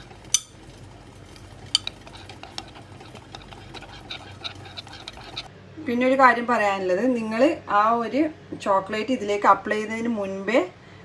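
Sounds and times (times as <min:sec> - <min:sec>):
whisk clinking against glass: 0:00.0 - 0:00.8, 0:01.4 - 0:05.5.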